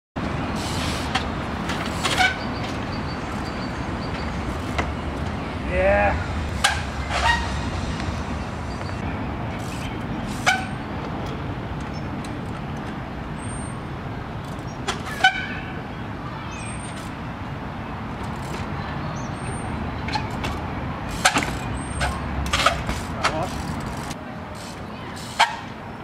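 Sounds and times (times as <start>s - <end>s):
city traffic rumble: 0.2s - 26.0s
bike wheels knocking on wood: 20.3s - 24.2s.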